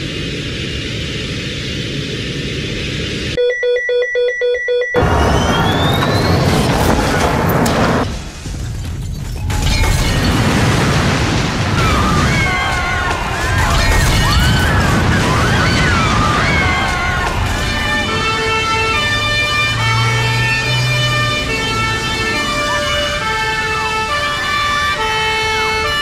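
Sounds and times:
two-tone siren: 3.3 - 7.4, 11.8 - 26.0
wailing sirens: 4.8 - 8.1, 11.6 - 26.0.

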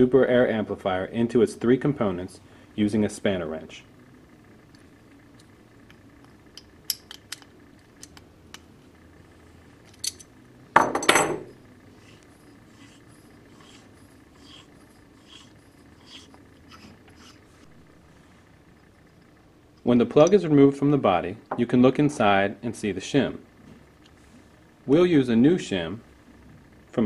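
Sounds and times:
soft scraping of threaded parts: 11.9 - 17.7.

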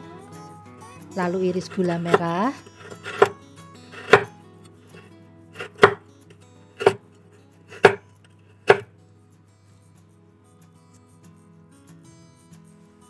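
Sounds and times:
knife chopping on wooden board: 1.7 - 3.4, 4.0 - 4.3, 5.6 - 6.0, 6.8 - 7.0, 7.7 - 8.0, 8.6 - 8.9.

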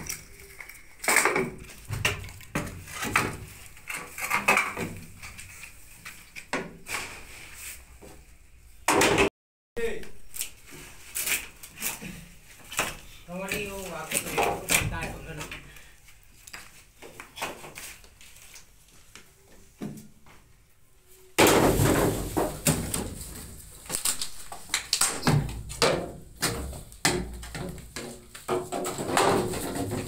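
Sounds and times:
bamboo poles knocking and clattering: 0.0 - 7.3, 9.9 - 15.8, 21.4 - 30.0.

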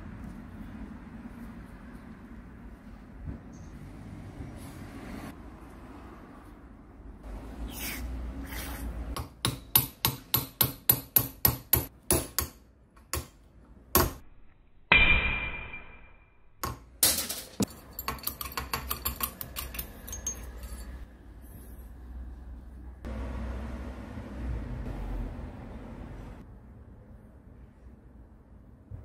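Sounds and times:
hammer striking steel: 14.9 - 20.9.

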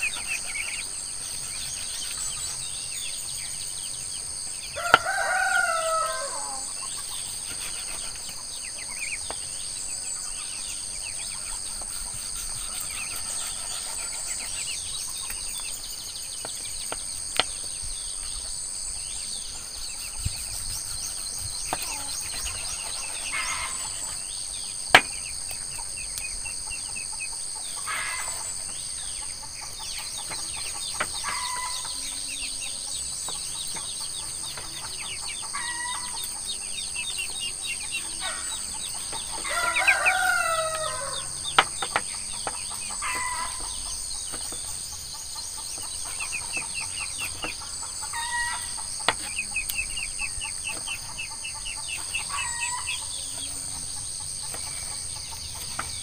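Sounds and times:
chickens clucking: 0.0 - 56.0
high-pitched insect drone: 4.5 - 9.2, 17.4 - 56.0
rooster crowing: 4.7 - 6.8, 31.2 - 32.0, 39.4 - 41.6, 43.0 - 43.8, 48.1 - 48.8.

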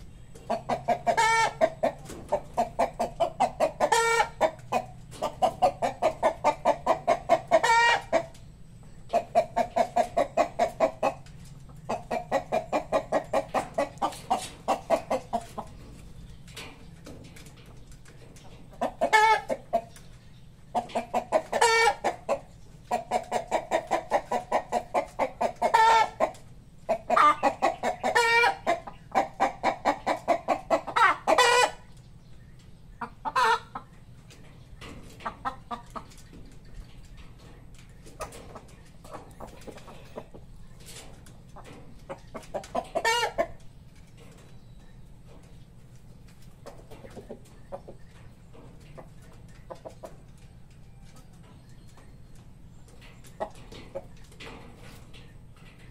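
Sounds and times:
chickens clucking: 0.0 - 55.9.

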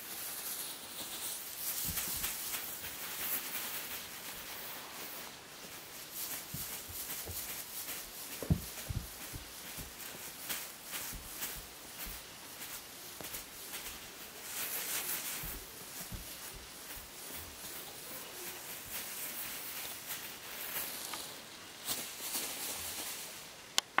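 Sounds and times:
foil tinsel crinkling: 0.0 - 23.7.

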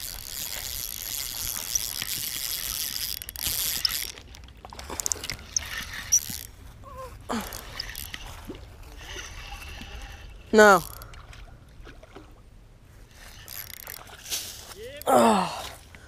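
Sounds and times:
fishing reel whirring: 0.0 - 11.1, 13.1 - 15.4.

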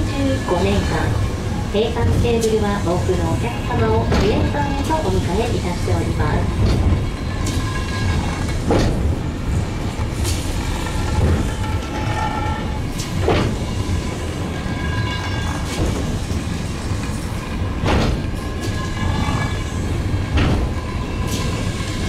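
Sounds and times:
funicular car rumbling: 0.0 - 22.0
sharp clacks of track: 6.6 - 9.1, 10.0 - 13.7, 17.8 - 19.7, 20.3 - 22.0.

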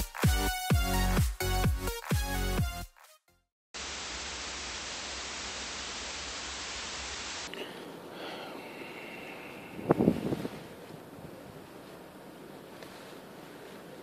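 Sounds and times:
electronic background music: 0.0 - 3.2
tv static hiss: 3.8 - 7.5
wind on the microphone: 9.6 - 11.8.

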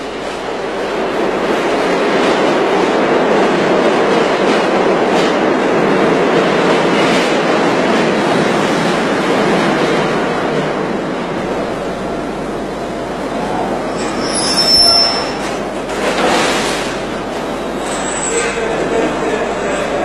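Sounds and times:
subway train wheels on rail: 0.0 - 20.0.

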